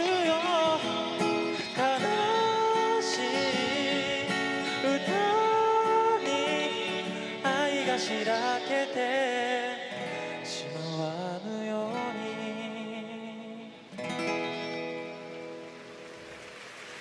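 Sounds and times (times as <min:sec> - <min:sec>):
man singing into a microphone: 0:00.0 - 0:14.1
acoustic guitar: 0:00.0 - 0:17.0.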